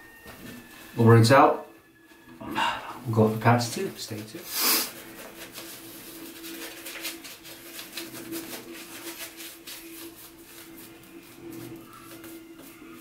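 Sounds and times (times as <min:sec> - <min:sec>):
shaving brush swishing on lather: 0:04.4 - 0:13.0.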